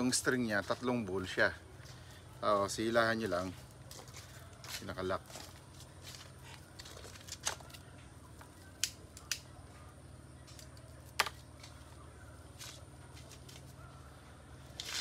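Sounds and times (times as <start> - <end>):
faint low hum: 0.0 - 15.0
rope handling noise: 3.6 - 9.5, 10.4 - 13.8, 14.6 - 15.0.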